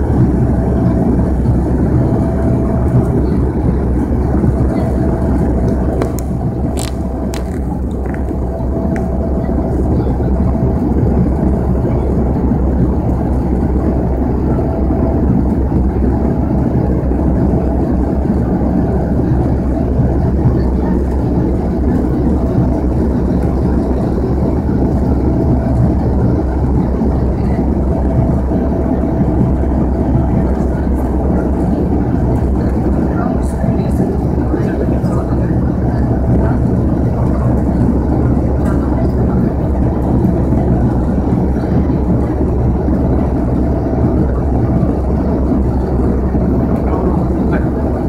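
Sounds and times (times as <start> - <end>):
turboprop cabin drone: 0.0 - 48.0.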